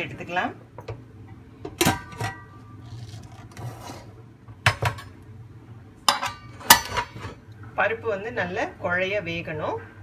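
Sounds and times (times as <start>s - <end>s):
metal lid clanking: 1.8s - 2.6s, 6.1s - 7.4s.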